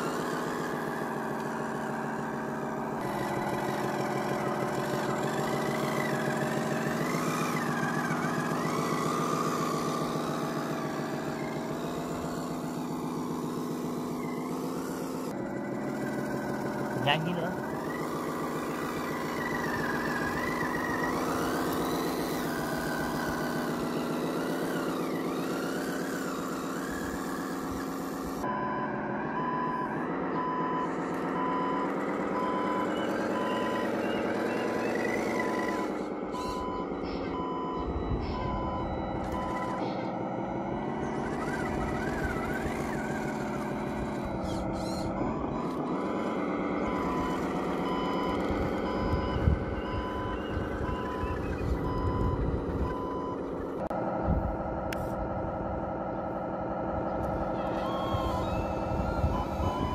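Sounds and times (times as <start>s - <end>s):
simulated diesel engine note: 0.0s - 59.9s
high reversing beeper: 16.5s - 53.9s, 57.5s - 59.9s.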